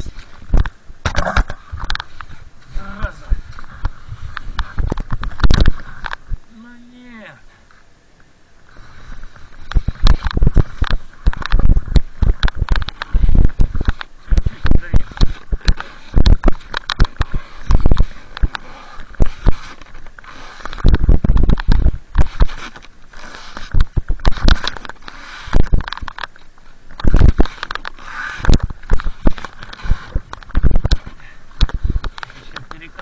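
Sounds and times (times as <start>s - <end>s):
hard breathing: 17.2s - 20.9s, 31.0s - 32.3s.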